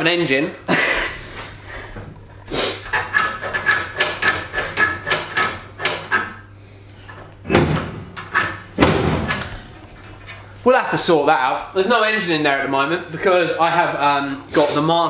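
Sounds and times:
metallic clicks and rattles: 2.9s - 6.3s.

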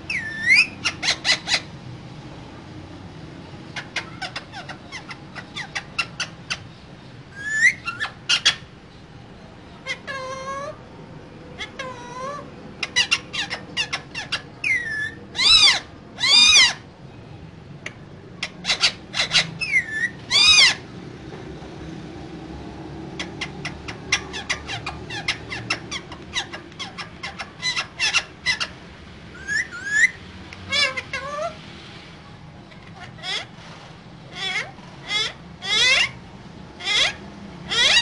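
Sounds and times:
parakeet chirps: 0.0s - 1.7s, 3.7s - 8.7s, 11.6s - 16.9s, 17.8s - 20.9s, 23.2s - 31.6s
parakeets clicking chatter: 0.0s - 1.8s, 3.6s - 9.1s, 11.5s - 16.9s, 17.7s - 20.9s, 23.0s - 31.6s, 32.6s - 38.0s
parakeets screeching: 0.0s - 1.8s, 3.4s - 9.0s, 9.6s - 17.0s, 17.7s - 21.1s, 22.7s - 38.0s.

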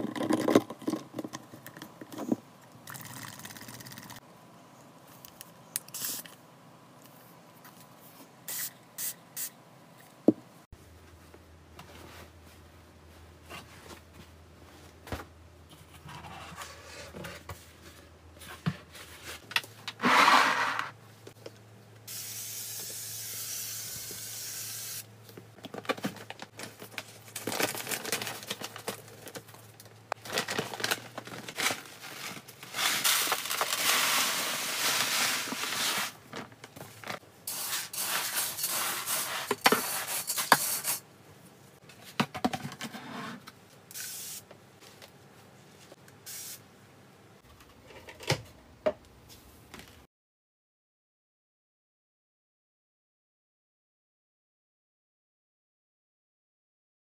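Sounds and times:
steady hiss: 22.1s - 25.1s.

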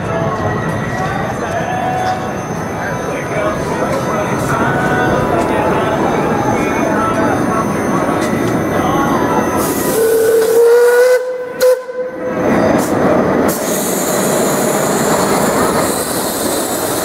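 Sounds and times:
train running with steady hiss: 0.0s - 17.0s
steam locomotive whistle: 9.5s - 12.3s.

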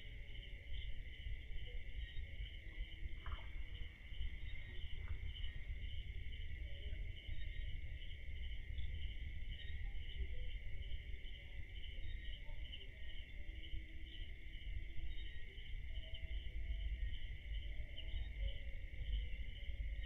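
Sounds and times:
crickets trilling: 0.0s - 20.0s
low steady rumble: 0.0s - 20.0s.

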